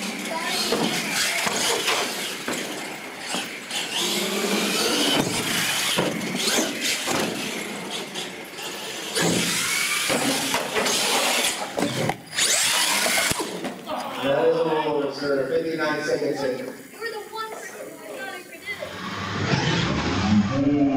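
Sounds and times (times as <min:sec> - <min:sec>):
electric motor whining: 0:08.6 - 0:13.6.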